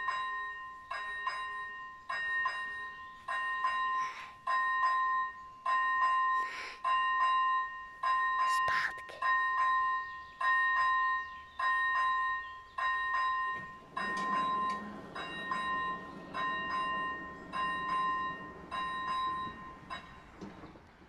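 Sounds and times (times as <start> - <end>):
level crossing bell ringing: 0.0 - 20.7
barrier motor hum: 13.6 - 21.0.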